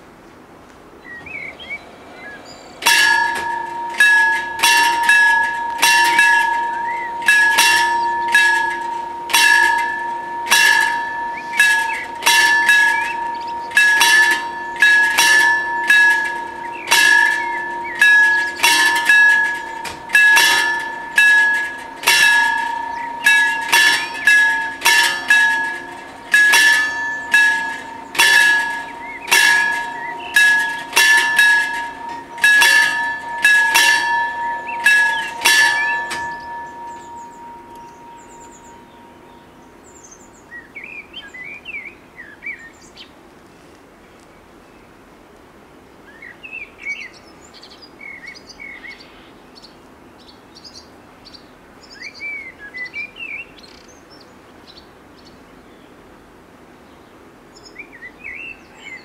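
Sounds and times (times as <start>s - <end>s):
level crossing bells ringing: 2.6s - 40.2s.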